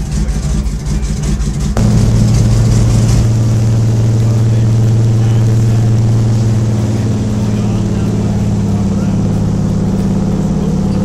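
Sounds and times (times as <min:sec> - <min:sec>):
light aircraft engine and propeller: 0:00.0 - 0:11.0.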